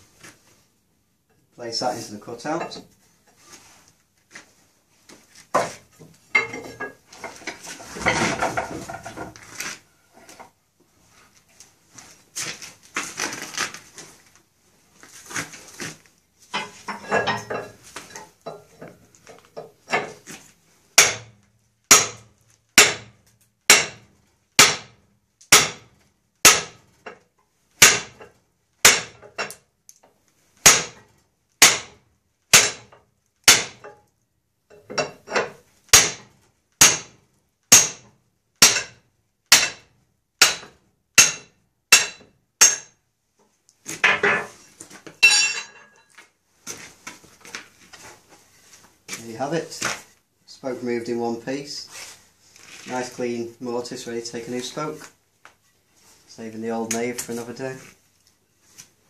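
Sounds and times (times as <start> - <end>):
knocking and scraping of wood and iron: 5.1 - 11.3, 15.2 - 34.1, 34.7 - 50.2.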